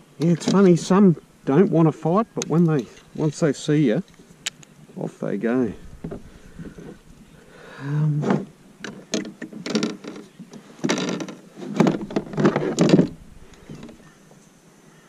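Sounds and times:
landing net scraping plastic hull: 0:08.2 - 0:14.0.

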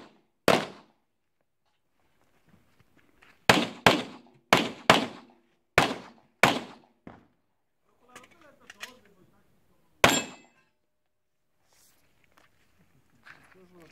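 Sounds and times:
pistol shots: 0:00.0 - 0:00.9, 0:03.5 - 0:06.9, 0:10.0 - 0:10.5.

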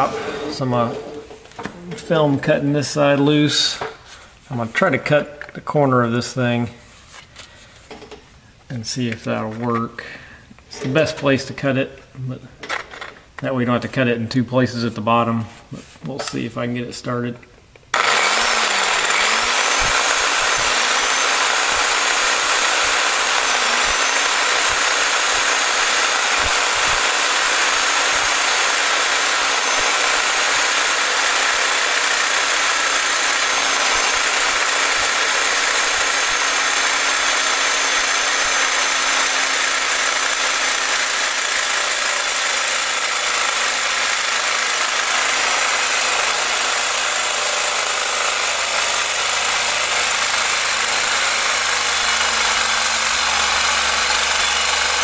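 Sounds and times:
reciprocating saw cutting steel: 0:17.9 - 0:55.0.

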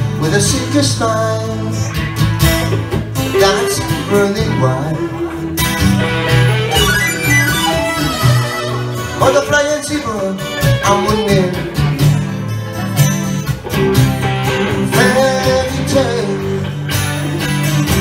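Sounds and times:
guitars playing: 0:00.0 - 0:18.0
harmonica: 0:05.1 - 0:11.2.

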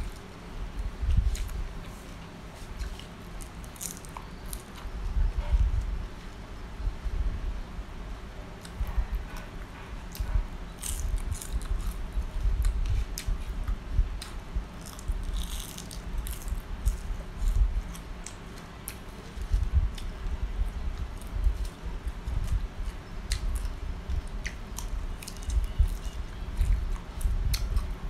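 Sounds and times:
chewing with crunching clicks: 0:02.6 - 0:04.9, 0:08.6 - 0:12.0, 0:12.6 - 0:20.3, 0:21.0 - 0:28.0.

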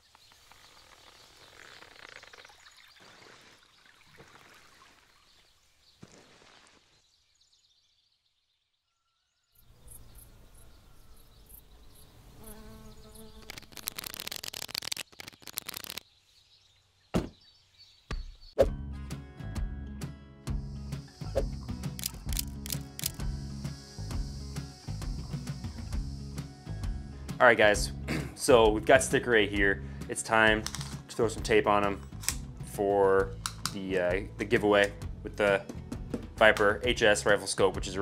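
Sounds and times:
insects buzzing: 0:00.0 - 0:04.3, 0:09.6 - 0:16.4, 0:20.5 - 0:27.2.

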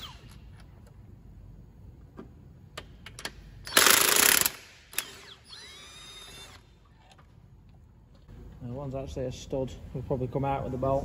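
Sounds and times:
impact wrench whine: 0:00.0 - 0:00.8, 0:02.8 - 0:07.2.

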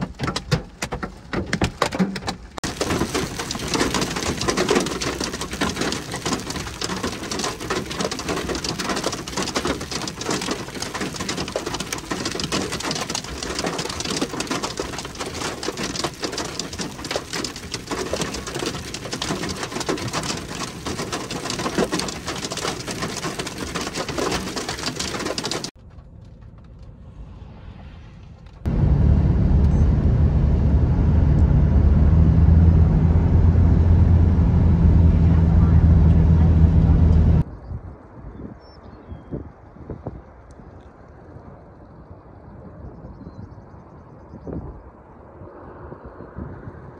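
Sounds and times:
hail and rain falling: 0:02.6 - 0:25.8
vehicle driving drone: 0:25.9 - 0:37.4.

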